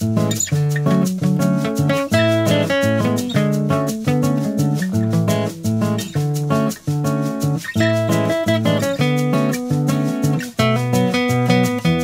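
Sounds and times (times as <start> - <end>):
instrumental music with plucked notes: 0.0 - 12.0.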